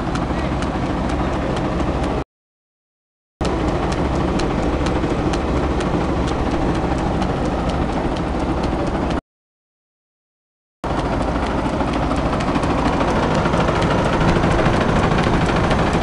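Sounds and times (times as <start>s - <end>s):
light ticking: 3.4s - 9.2s, 10.9s - 16.0s
threshing machine whirring and rattling: 10.9s - 16.0s.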